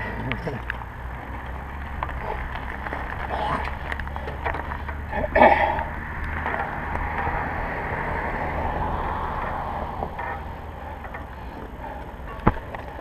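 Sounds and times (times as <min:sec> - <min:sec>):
car tyre noise passing: 0:00.0 - 0:13.0
steady low rumble: 0:00.0 - 0:13.0.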